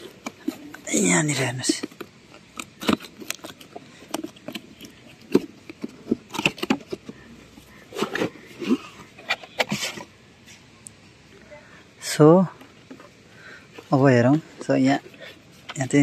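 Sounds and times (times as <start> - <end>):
cardboard box being pried open: 1.7 - 7.2.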